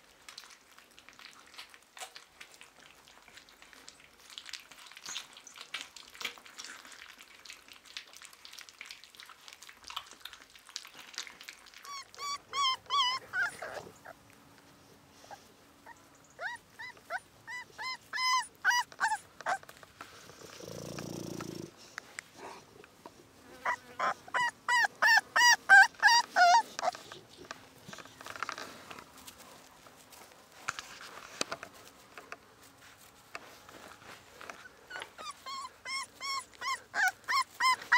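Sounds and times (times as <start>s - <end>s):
puppies lapping food: 0.0s - 32.2s, 32.8s - 37.9s
puppies whimpering and yelping: 11.7s - 14.2s, 15.2s - 19.7s, 23.6s - 27.5s, 34.5s - 37.9s.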